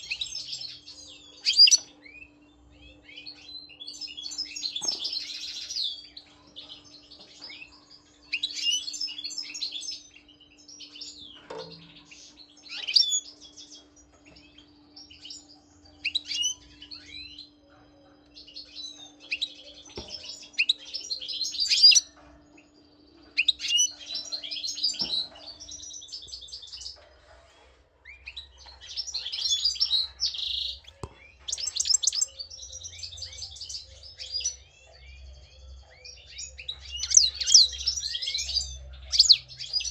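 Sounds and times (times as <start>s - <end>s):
goldfinch twittering song: 28.6s - 35.3s, 36.1s - 39.9s.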